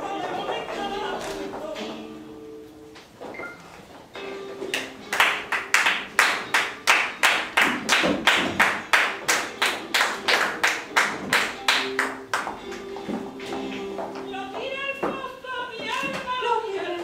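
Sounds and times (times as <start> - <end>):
people clapping palmas: 4.7 - 12.9.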